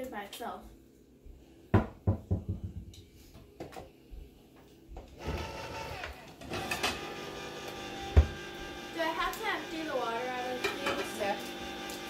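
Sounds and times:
electric can opener whining: 5.2 - 12.0.

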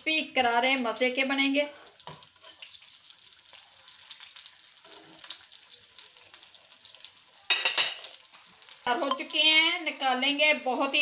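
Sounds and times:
food sizzling in hot oil: 0.0 - 11.0.

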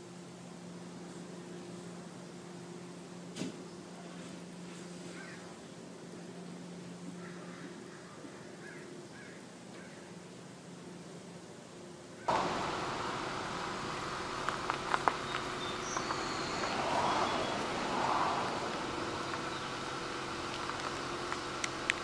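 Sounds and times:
outdoor hiss and hum: 0.0 - 22.0.

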